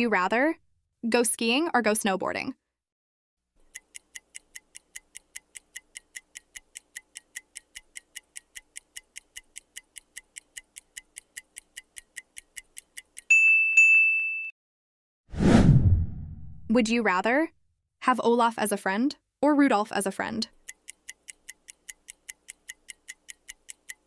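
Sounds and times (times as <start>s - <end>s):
clock-like ticking: 3.6s - 13.3s, 20.4s - 24.0s.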